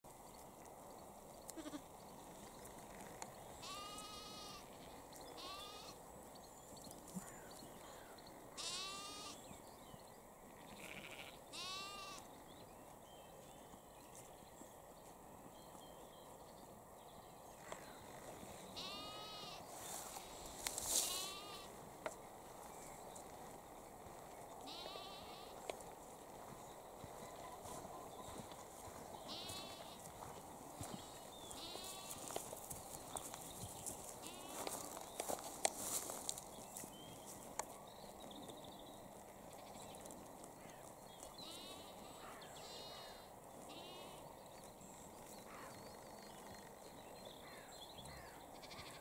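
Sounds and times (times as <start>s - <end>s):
lamb bleating: 1.6s - 1.8s, 3.6s - 4.7s, 5.4s - 6.0s, 8.6s - 9.4s, 10.6s - 12.2s, 18.8s - 19.6s, 21.0s - 21.7s, 24.7s - 25.6s, 29.3s - 30.1s, 31.0s - 32.3s, 34.2s - 34.6s, 41.4s - 44.2s, 48.6s - 49.0s.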